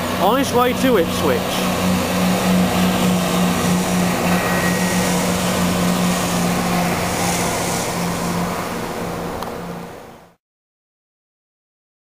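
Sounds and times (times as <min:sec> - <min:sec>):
diesel train engine drone: 0:00.0 - 0:10.4
train running noise: 0:00.6 - 0:10.2.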